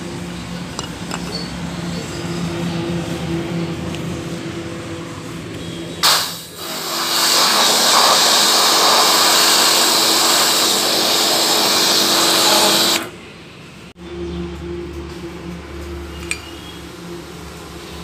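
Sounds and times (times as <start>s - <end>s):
pressure washer spraying metal: 6.0s - 13.1s.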